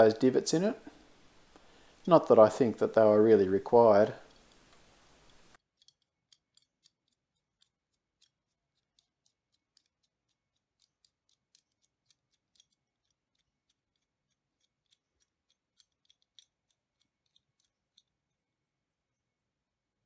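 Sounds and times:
wrench thumbwheel clicking: 0:05.2 - 0:18.2.

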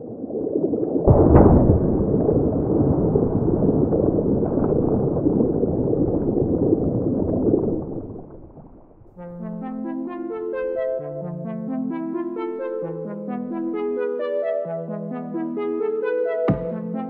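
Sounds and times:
dense low rumble: 0:01.1 - 0:09.1.

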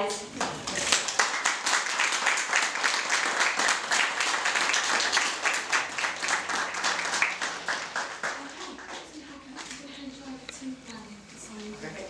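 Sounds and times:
crowd applauding: 0:00.4 - 0:09.2.

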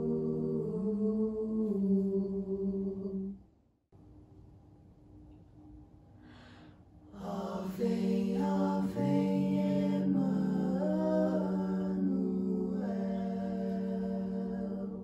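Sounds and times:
vocal group singing in harmony: 0:00.0 - 0:03.4, 0:07.1 - 0:15.0.

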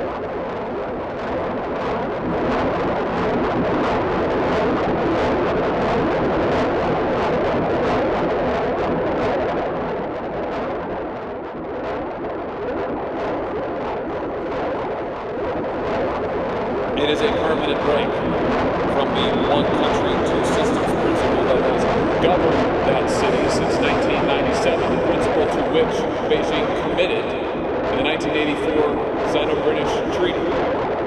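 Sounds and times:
distorted music from vinyl record: 0:12.7 - 0:31.0.

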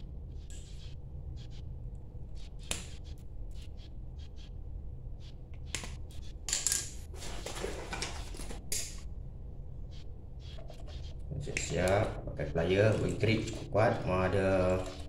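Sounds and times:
scraping rustle: 0:07.0 - 0:08.7.

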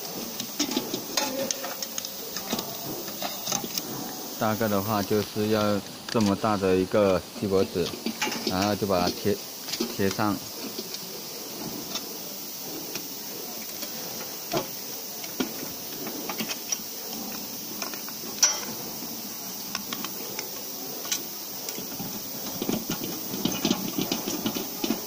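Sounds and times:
foil rustling: 0:00.0 - 0:18.1
faint hiss: 0:00.0 - 0:25.0.

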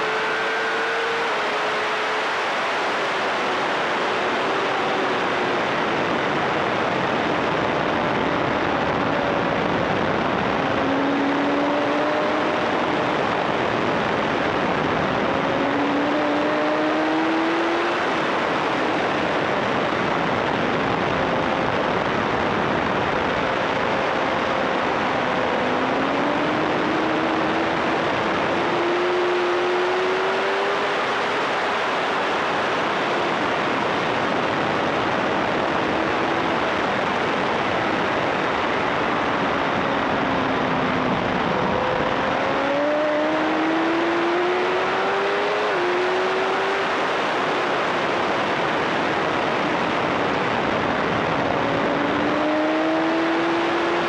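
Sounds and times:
motorcycle engine accelerating: 0:00.0 - 0:20.1, 0:22.9 - 0:48.7, 0:49.3 - 0:54.0
loud wind rush: 0:00.0 - 0:54.0.

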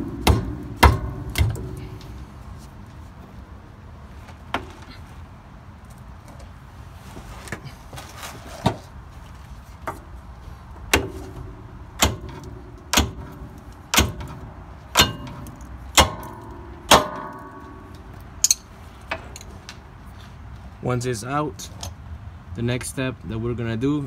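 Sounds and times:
hammer striking metal bolt: 0:00.0 - 0:01.9, 0:10.9 - 0:19.4.

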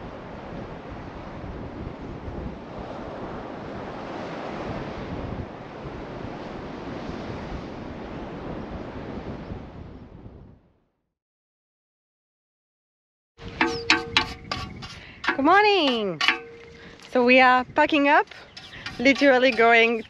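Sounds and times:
surf washing on a beach: 0:00.0 - 0:09.9
wind buffeting the microphone: 0:00.0 - 0:10.8, 0:13.4 - 0:20.0.

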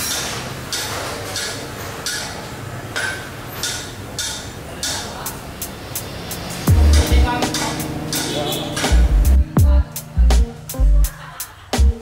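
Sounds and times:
hammer striking metal: 0:00.0 - 0:05.4, 0:06.6 - 0:09.3.

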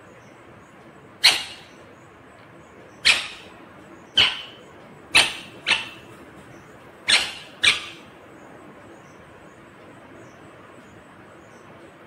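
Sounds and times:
parakeet shrill calls: 0:01.2 - 0:01.8, 0:03.0 - 0:06.2, 0:07.0 - 0:08.1.

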